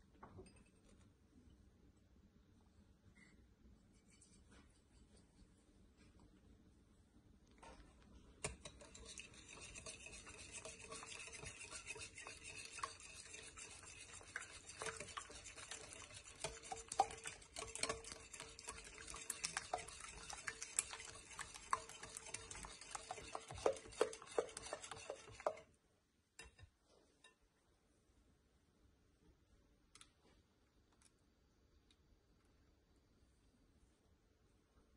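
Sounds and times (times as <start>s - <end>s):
whisk scraping glass bowl: 8.4s - 25.8s.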